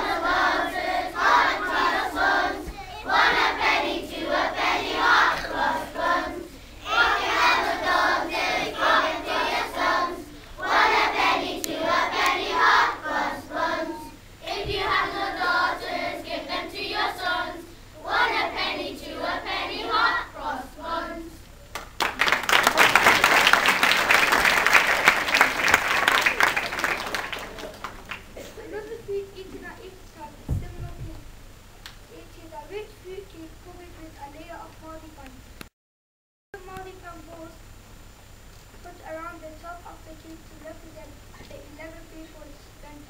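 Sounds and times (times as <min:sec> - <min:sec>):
children singing together: 0:00.0 - 0:21.4
applause and clapping: 0:21.7 - 0:28.4.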